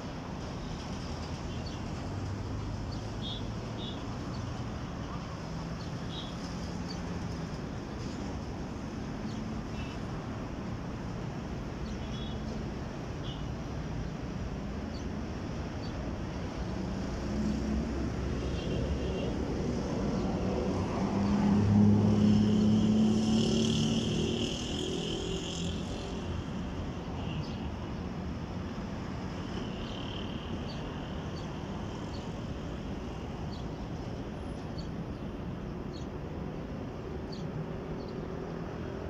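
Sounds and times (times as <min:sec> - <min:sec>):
vehicle driving past: 0:16.9 - 0:26.4.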